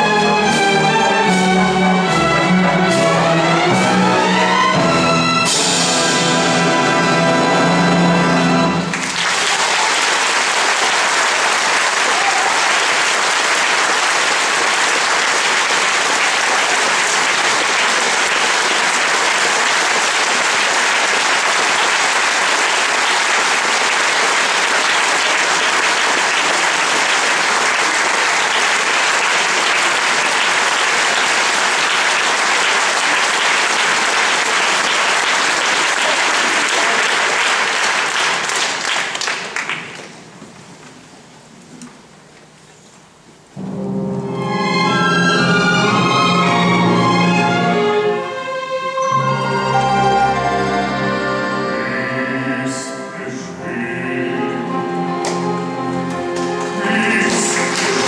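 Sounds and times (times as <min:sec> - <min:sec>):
audience applauding: 0:08.8 - 0:40.3, 0:55.2 - 0:58.0.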